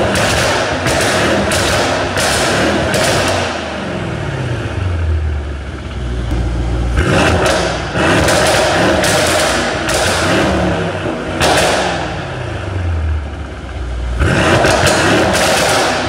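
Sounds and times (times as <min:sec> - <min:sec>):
exhaust cracks and pops: 0:00.0 - 0:03.6, 0:07.0 - 0:12.0, 0:14.2 - 0:16.0
car engine revving: 0:00.0 - 0:16.0.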